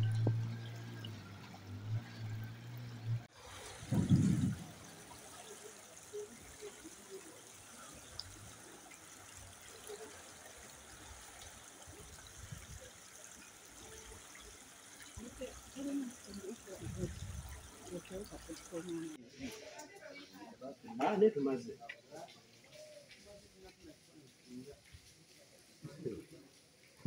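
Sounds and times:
floodwater rushing along street: 0.0 - 19.2, 21.6 - 27.0
loud low thump: 3.9 - 4.8.

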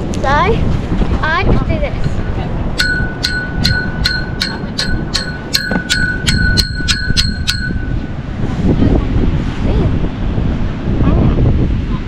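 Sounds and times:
metal pole struck ringing: 2.8 - 8.2.

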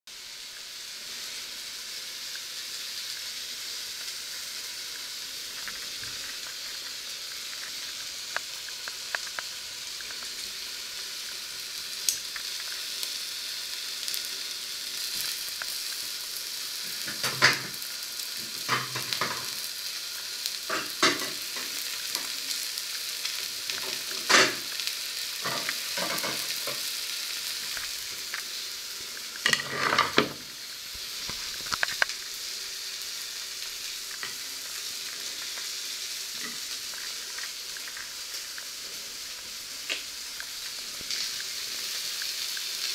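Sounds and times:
eggs sizzling in pan: 0.1 - 42.9
crackling pops: 3.9 - 13.2, 14.9 - 19.6, 23.2 - 42.9.

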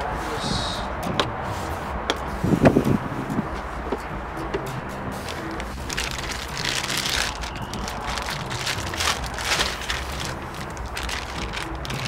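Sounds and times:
low rumble: 0.0 - 12.0
plastic bag crinkling: 5.3 - 12.0.

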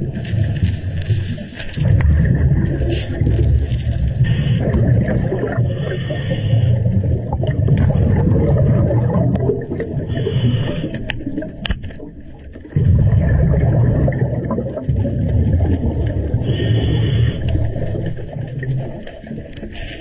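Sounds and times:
exhaled bubbles rumbling: 0.0 - 20.0
regulator inhalation hiss: 4.2 - 4.6, 5.7 - 6.9, 10.1 - 11.0, 16.4 - 17.6.

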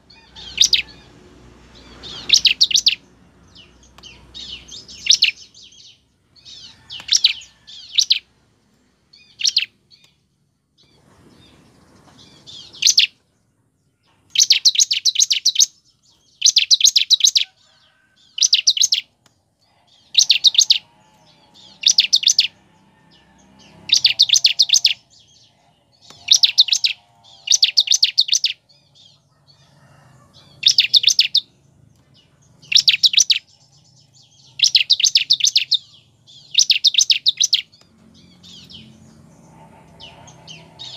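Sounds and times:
bird calling in ticking trills: 18.3 - 19.1, 20.0 - 22.5, 23.8 - 25.0, 26.0 - 28.6, 30.6 - 31.4, 32.7 - 33.5, 34.5 - 37.8.

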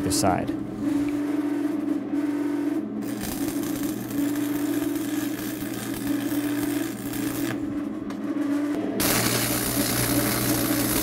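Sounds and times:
steady low hum: 0.0 - 11.0
welding arc crackling: 3.0 - 7.6, 9.0 - 11.0.

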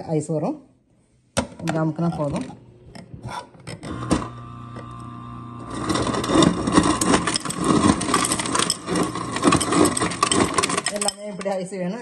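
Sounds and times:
ice dispenser motor humming: 3.7 - 11.1
crushed ice clattering: 5.6 - 11.5.

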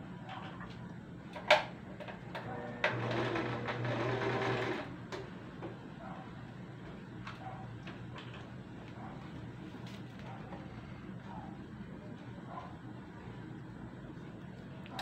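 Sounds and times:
sewing machine stitching: 2.6 - 4.9.

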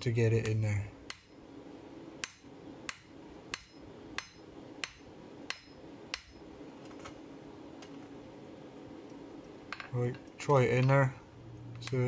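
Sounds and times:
low background noise: 0.0 - 12.0
hammer striking steel on anvil: 0.4 - 1.4, 2.2 - 6.4.

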